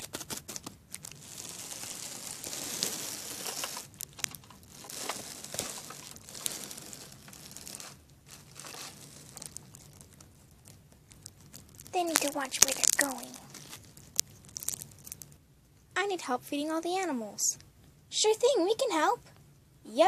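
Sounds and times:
plastic toys crinkling and rustling: 0.0s - 15.4s.

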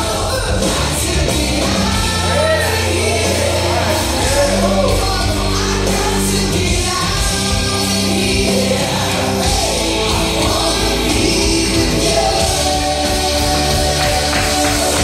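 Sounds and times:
loud music with singing: 0.0s - 15.0s.

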